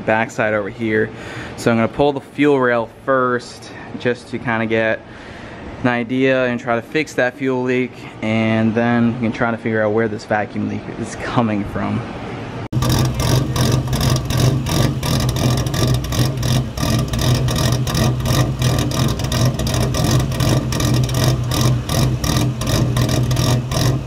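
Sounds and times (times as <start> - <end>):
car engine idling with loping beat: 12.8 - 24.0.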